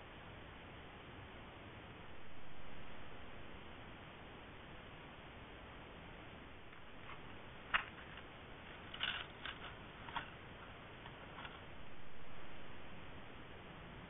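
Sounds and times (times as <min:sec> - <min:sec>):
microphone hiss: 0:00.0 - 0:14.0
fox clicks and rustles: 0:06.7 - 0:11.9.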